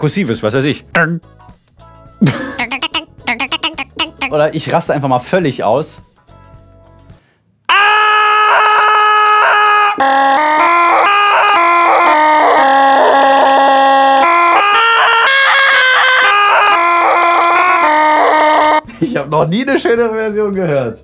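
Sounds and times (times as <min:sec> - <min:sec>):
sampled yell played on keyboard: 0:07.7 - 0:18.9.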